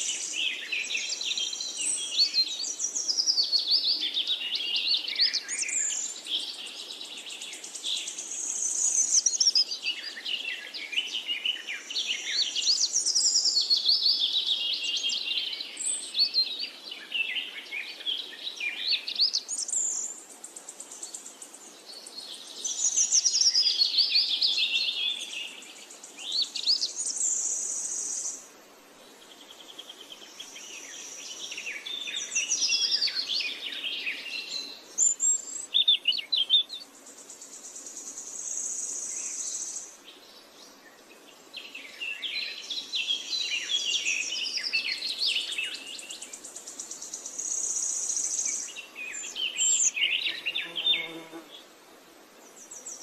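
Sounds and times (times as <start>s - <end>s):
birds chirping and calling: 41.6s - 51.4s.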